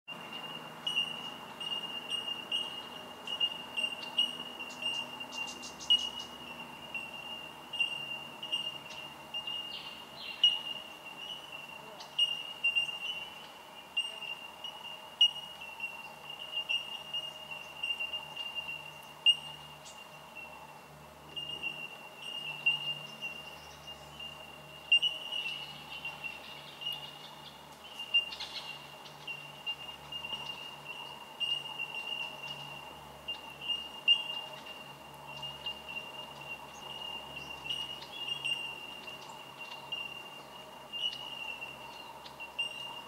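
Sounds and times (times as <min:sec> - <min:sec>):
birds tinking calls: 0:00.1 - 0:43.0.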